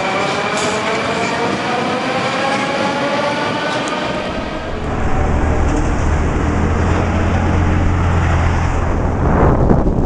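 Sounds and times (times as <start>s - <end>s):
train motor whine: 3.8s - 8.9s
low rumble of street traffic: 4.1s - 10.0s.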